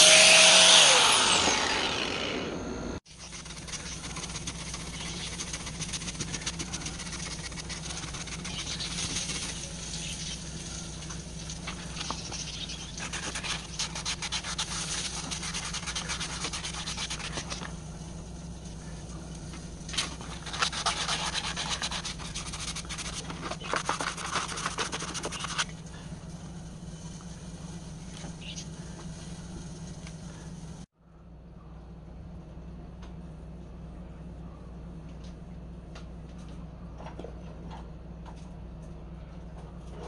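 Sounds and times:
steady low hum: 0.0s - 40.0s
hand sanding strokes: 3.1s - 17.7s, 20.0s - 25.7s.

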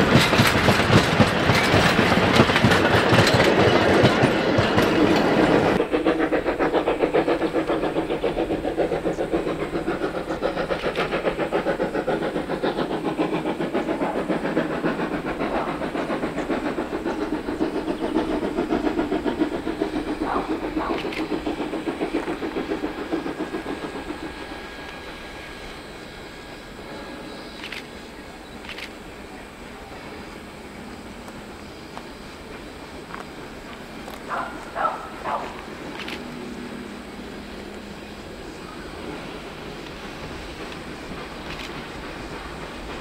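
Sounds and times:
train carriages clattering over rail joints: 0.0s - 5.8s
steam locomotive chuffing: 0.0s - 43.0s.

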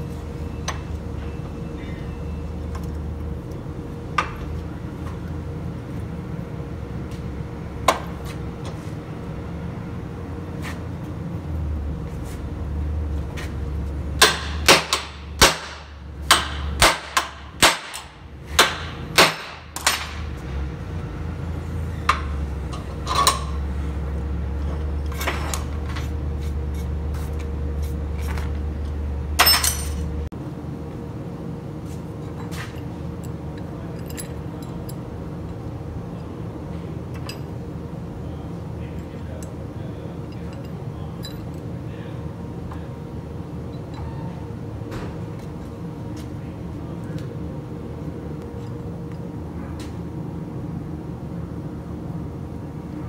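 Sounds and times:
steady low hum: 0.0s - 53.0s
metal tools clanking on steel bench: 22.0s - 23.6s, 29.4s - 30.1s.

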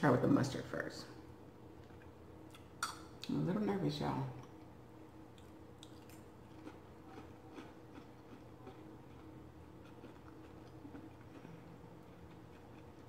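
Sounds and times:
low steady hum: 0.0s - 13.0s
person chewing fried food: 4.4s - 13.0s.

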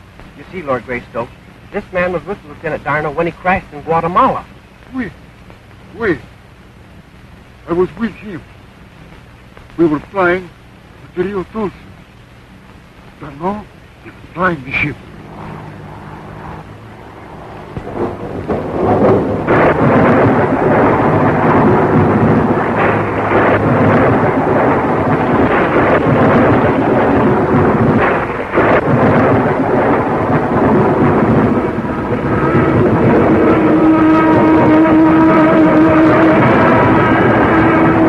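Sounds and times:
rough rumbling roar: 13.2s - 38.0s.

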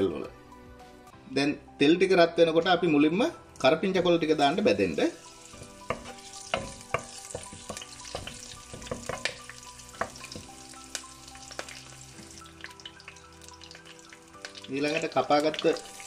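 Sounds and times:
leaves frying in hot oil: 3.7s - 16.0s
wooden spatula stirring in pan: 5.4s - 10.6s.

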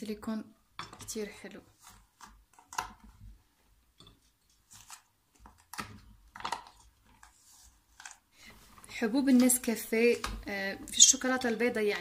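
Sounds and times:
soft rubbing and scraping: 7.1s - 9.0s.

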